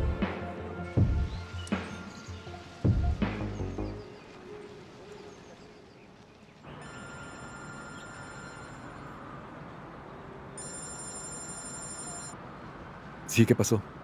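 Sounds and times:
street background noise: 0.0 - 14.0
mobile phone ringtone: 6.8 - 9.2, 10.6 - 12.4.

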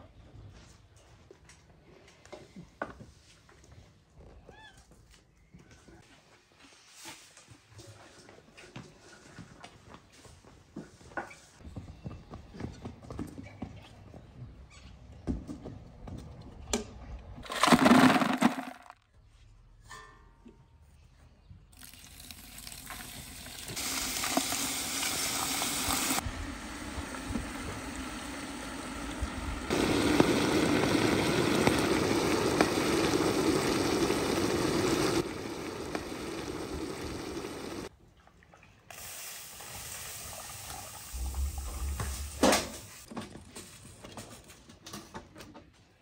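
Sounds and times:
water pouring into plastic bucket: 17.4 - 18.9, 21.8 - 26.2.

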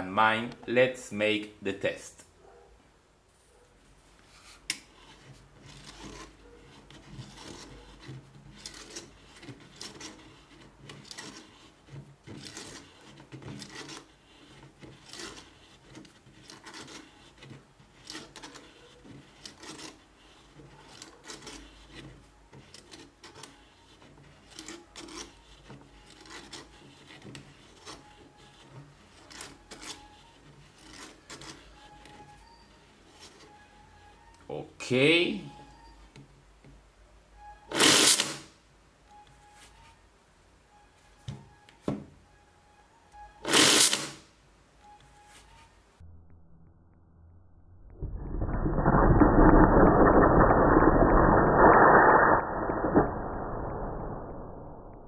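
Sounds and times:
plastic bobbin rubbing and scraping: 4.2 - 40.1, 43.1 - 45.8, 47.9 - 55.0.

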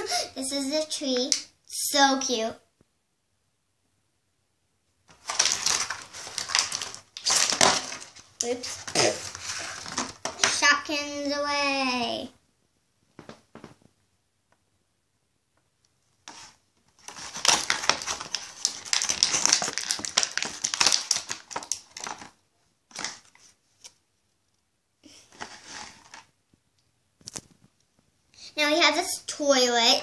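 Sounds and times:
crinkling and rustling: 5.0 - 10.8, 13.0 - 14.0, 16.1 - 28.2.

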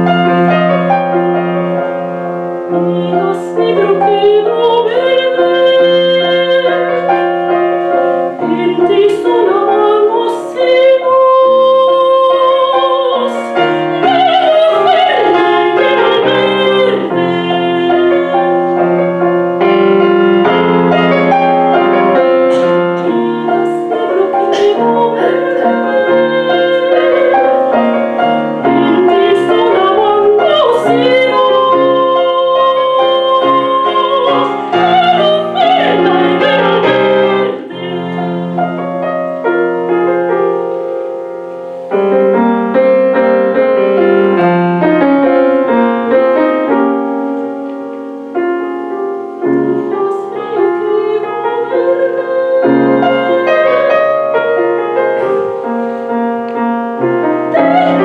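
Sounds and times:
soprano singing operatically: 0.0 - 39.9, 49.2 - 55.8, 57.1 - 58.0
grand piano accompaniment: 0.0 - 58.0.

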